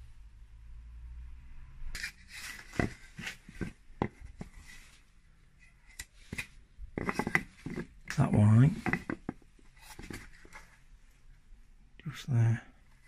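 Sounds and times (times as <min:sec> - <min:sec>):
wood rubbing and scraping: 0:02.0 - 0:05.0, 0:06.2 - 0:10.8.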